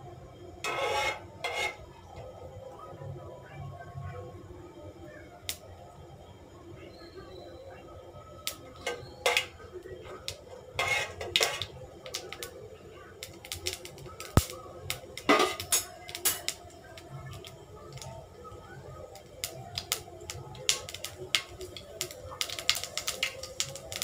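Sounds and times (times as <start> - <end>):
spatula scraping pan: 0.6 - 2.0, 8.8 - 9.6, 10.8 - 12.2
seeds popping in hot oil: 0.6 - 2.3, 8.2 - 24.0.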